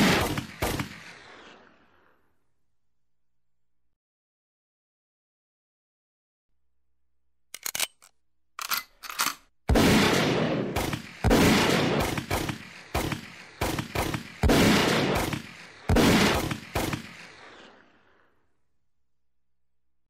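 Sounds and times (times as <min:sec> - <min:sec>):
gunshots with echo: 0:00.0 - 0:01.7, 0:09.7 - 0:17.9.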